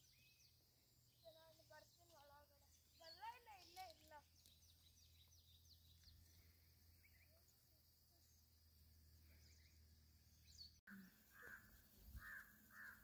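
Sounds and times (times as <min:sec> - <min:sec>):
faint bird chirps: 0:00.0 - 0:13.0
crow cawing: 0:11.3 - 0:13.0.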